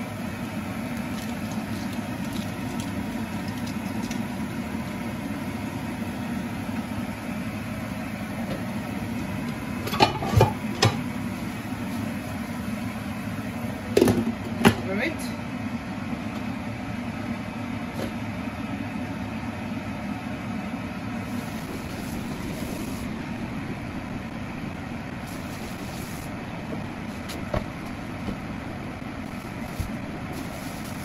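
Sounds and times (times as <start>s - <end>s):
food cooking in frying pan: 0.0s - 13.8s, 21.2s - 31.0s
low hum: 20.9s - 31.0s.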